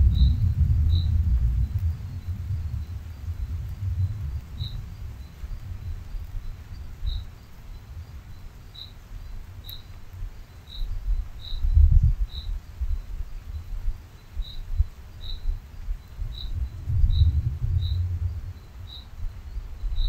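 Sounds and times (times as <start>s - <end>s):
low rumble: 0.0s - 6.6s, 16.4s - 19.4s
cricket chirping: 0.0s - 20.0s.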